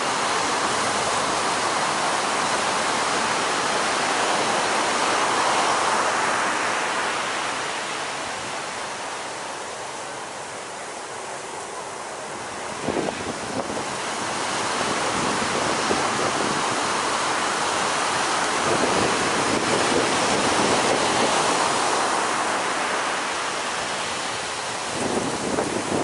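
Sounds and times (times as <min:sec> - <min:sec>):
ocean surf breaking: 0:00.0 - 0:26.0
wind buffeting microphone: 0:12.3 - 0:26.0.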